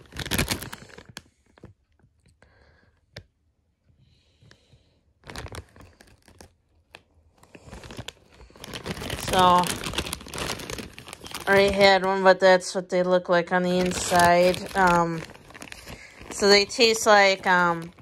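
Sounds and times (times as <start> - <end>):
foil chip bag crinkling: 0.0 - 1.7, 5.2 - 12.4, 13.5 - 18.0.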